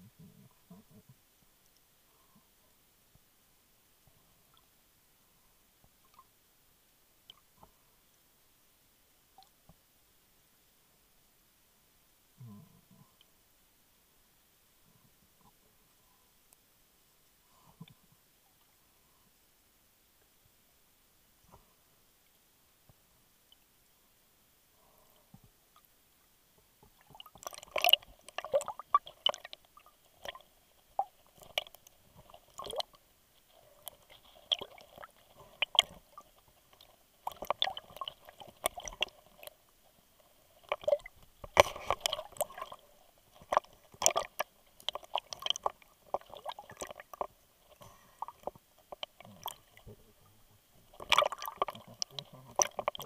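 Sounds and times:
underwater clicks and knocks: 26.8s - 29.6s, 33.8s - 39.5s, 40.6s - 47.4s, 48.2s - 49.9s, 50.8s - 53.0s
water sloshing: 26.9s - 53.0s.

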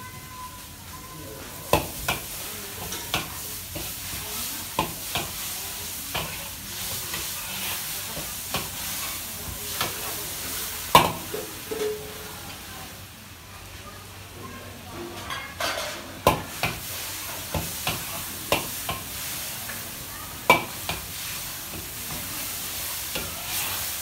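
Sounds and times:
food sizzling in wok: 0.0s - 24.0s
metal spatula scraping wok: 2.1s - 10.7s, 20.7s - 24.0s.

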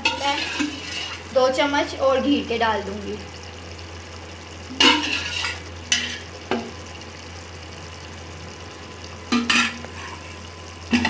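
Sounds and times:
meat sizzling: 0.0s - 11.0s.

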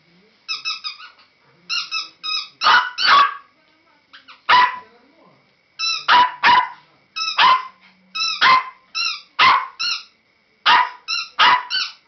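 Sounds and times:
dog yipping: 2.6s - 3.5s, 4.2s - 4.8s, 5.8s - 10.0s, 10.7s - 12.0s
small dog barking: 2.6s - 3.5s, 4.2s - 4.9s, 6.0s - 7.8s, 8.4s - 9.9s, 10.6s - 12.0s.

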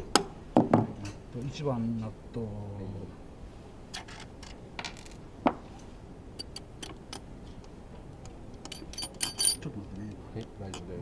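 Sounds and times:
bright metal clinks: 8.6s - 9.8s.

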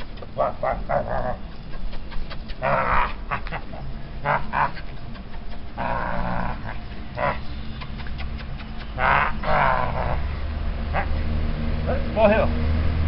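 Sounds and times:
puppy play growls: 0.2s - 1.5s, 2.2s - 10.3s.

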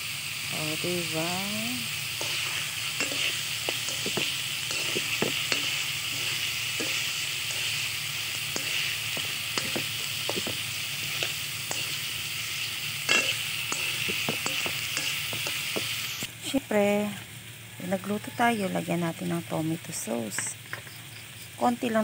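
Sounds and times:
chicken sizzling in hot oil: 0.0s - 22.0s
metal tongs scraping a pan: 0.8s - 16.2s.

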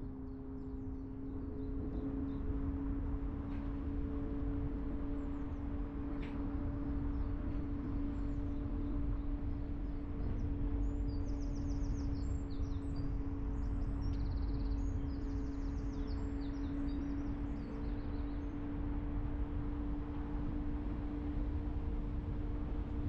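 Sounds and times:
car engine rumble: 0.0s - 23.0s
songbird chirping and trilling: 9.5s - 18.6s.

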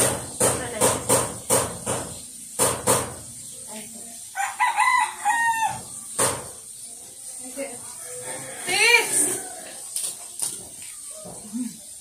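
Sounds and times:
rooster crowing: 4.4s - 5.9s, 8.0s - 9.8s.

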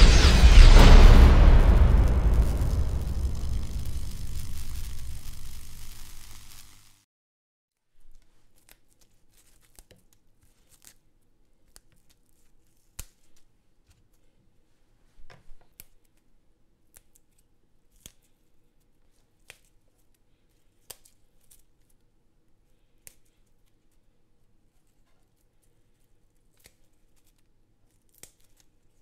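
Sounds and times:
herb leaves snapping and tearing: 8.5s - 11.0s, 16.9s - 18.3s, 20.8s - 21.7s, 26.5s - 29.0s.

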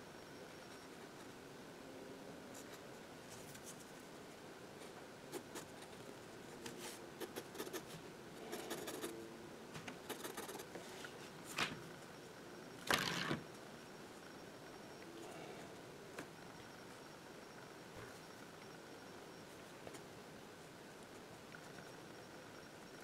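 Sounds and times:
pen nib scratching on paper: 8.5s - 9.1s, 10.1s - 10.6s.

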